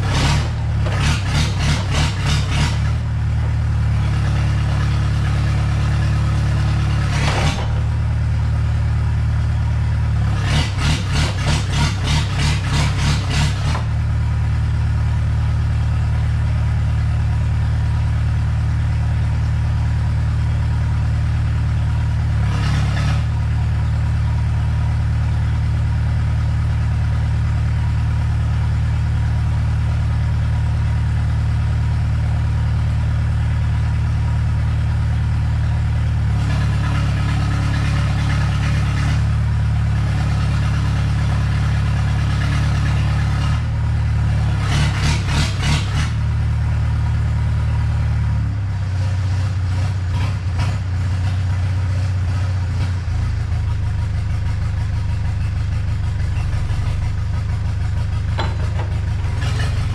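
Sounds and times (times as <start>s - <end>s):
diesel engine idling: 0.0s - 59.9s.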